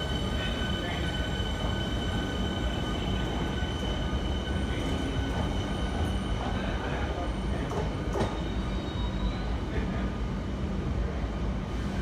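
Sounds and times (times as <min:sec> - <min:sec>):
high-pitched train whine: 0:00.0 - 0:10.0
electric train rumbling: 0:00.0 - 0:12.0.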